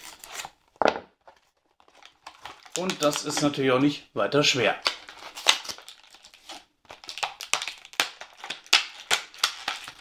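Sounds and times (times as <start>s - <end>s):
plastic blister pack crackling: 1.6s - 4.0s, 4.6s - 10.0s.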